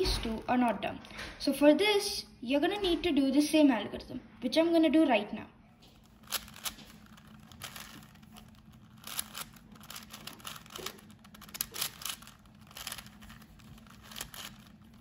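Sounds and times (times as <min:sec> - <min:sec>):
plastic puzzle cube clicking: 0:06.2 - 0:15.0.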